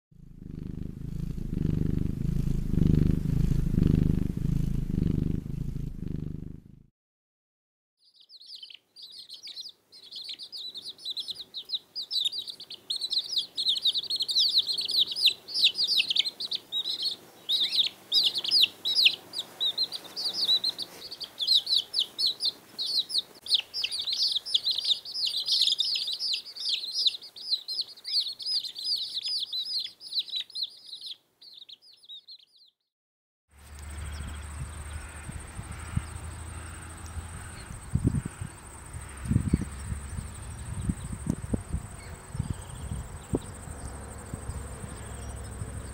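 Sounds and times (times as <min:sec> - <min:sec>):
low rumble with high whine: 0:00.2 - 0:06.9
quail chicks peeping: 0:08.0 - 0:32.8, 0:33.7 - 0:45.9.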